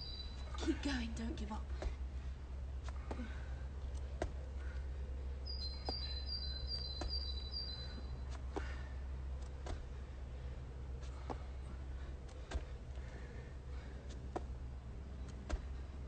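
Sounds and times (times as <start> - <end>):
songbird singing: 0.0 - 1.6, 3.7 - 8.4
low outdoor rumble: 0.0 - 16.0.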